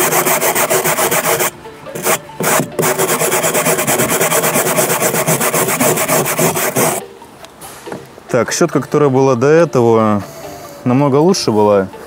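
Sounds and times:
stiff brush scratching fabric: 0:00.0 - 0:07.0.

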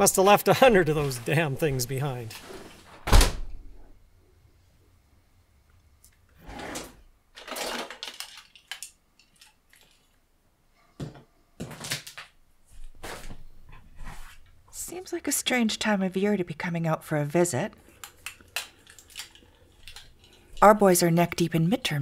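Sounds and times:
drawers sliding open and shut: 0:02.3 - 0:03.5, 0:06.3 - 0:08.1
small clicks and clatters: 0:07.4 - 0:10.2, 0:18.0 - 0:20.4.

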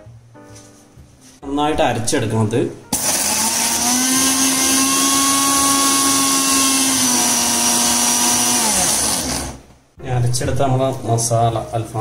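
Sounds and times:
mixer grinder whining: 0:02.9 - 0:09.7.

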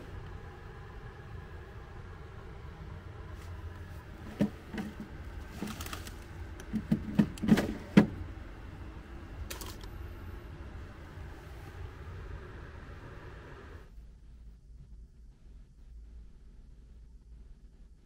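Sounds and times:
low steady hum: 0:00.0 - 0:18.0
plastic snack bags rustling: 0:05.4 - 0:06.4.

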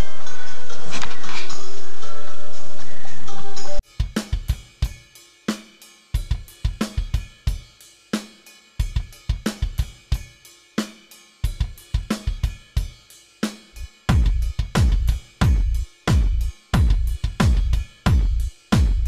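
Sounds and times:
drum kit playing a beat: 0:03.8 - 0:19.0.

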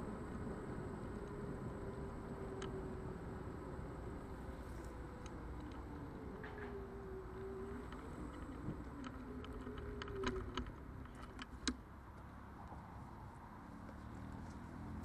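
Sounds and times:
electric scooter motor whine: 0:00.0 - 0:11.9
low road rumble: 0:00.0 - 0:15.0
sharp clicks and rattles: 0:07.6 - 0:11.8.

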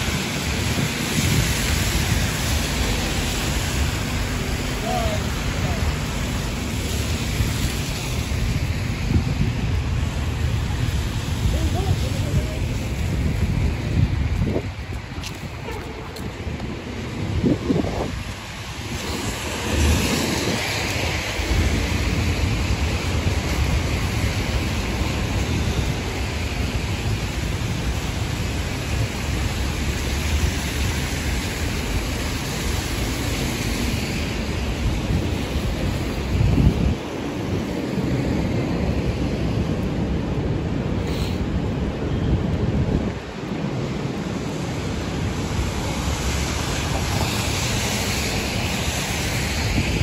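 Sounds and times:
rain hiss: 0:00.0 - 0:50.0
traffic on wet streets: 0:00.0 - 0:50.0
wind rumbling on microphone: 0:00.0 - 0:50.0.

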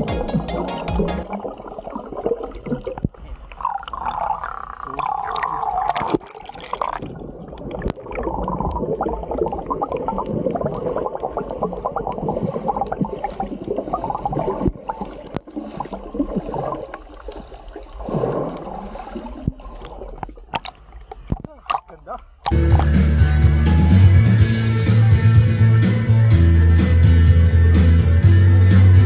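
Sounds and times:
underwater gurgling and bubbling: 0:00.0 - 0:21.4
crackle of tiny clicks and pops: 0:07.6 - 0:18.7.

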